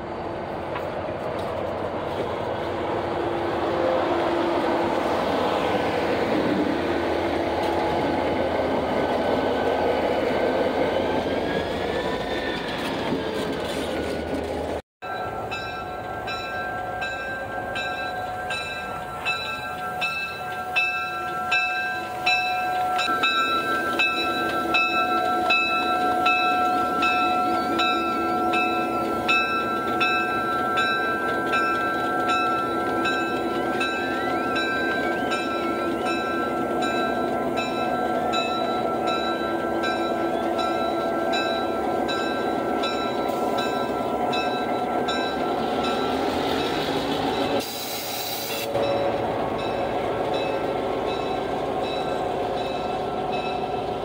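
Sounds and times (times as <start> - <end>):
diesel locomotive engine: 0.0 - 54.0.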